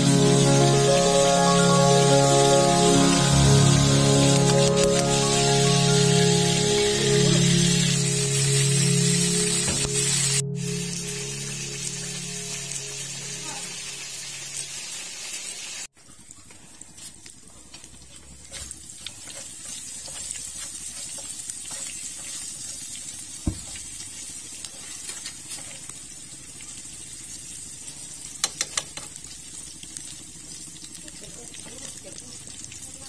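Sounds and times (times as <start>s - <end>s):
food sizzling in frying pan: 0.0s - 15.9s, 17.0s - 33.0s
chopsticks scraping on pan: 18.4s - 22.8s.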